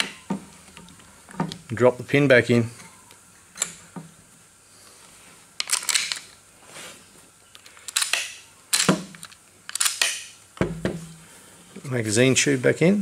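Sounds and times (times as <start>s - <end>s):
rifle parts clicking and scraping: 5.6s - 6.4s, 7.6s - 10.3s.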